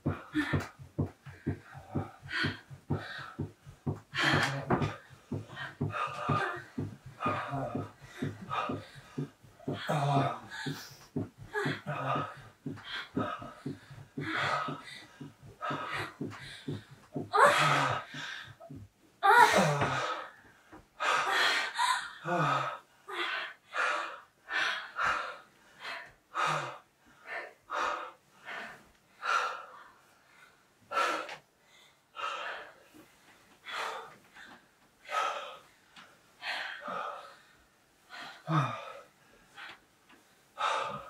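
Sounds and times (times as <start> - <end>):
gasping breaths and moans: 0.0 - 30.0, 38.1 - 39.8.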